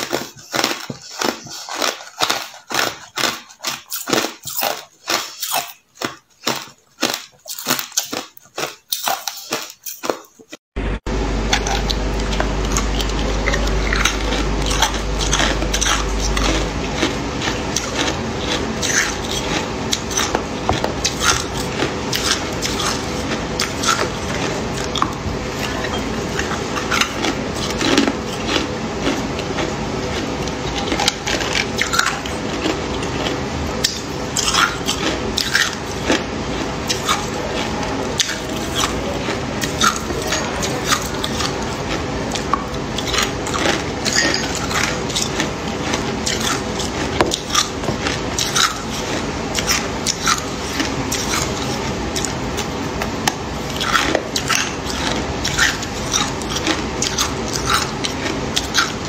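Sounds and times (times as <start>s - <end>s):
ice cubes crunched between teeth: 0.0s - 10.5s.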